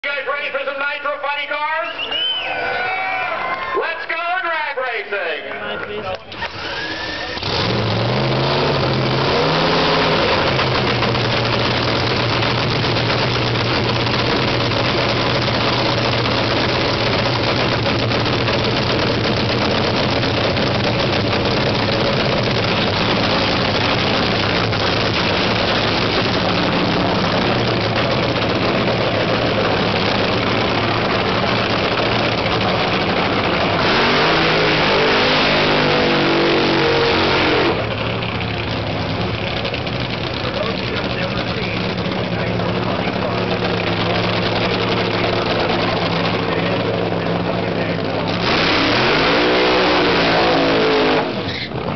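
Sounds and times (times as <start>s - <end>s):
drag racing engine idling loudly: 5.6s - 51.9s.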